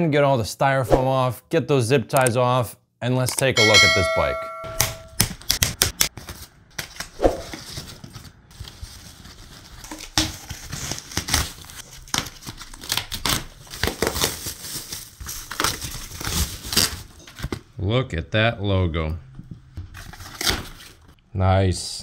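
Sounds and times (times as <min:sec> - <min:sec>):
plastic wrap rustling and crinkling: 0:06.1 - 0:17.7.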